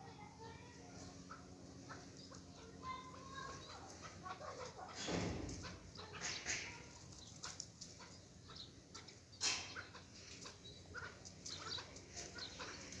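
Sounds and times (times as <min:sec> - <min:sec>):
partridge chicks chirping: 0:00.0 - 0:13.0.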